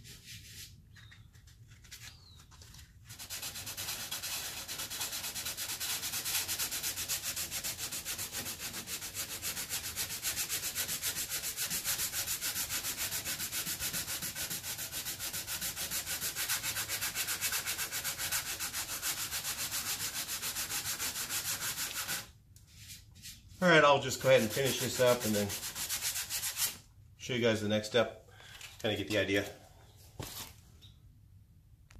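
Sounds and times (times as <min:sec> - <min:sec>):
sandpaper rasping on putty: 0:03.1 - 0:22.3, 0:24.1 - 0:26.8.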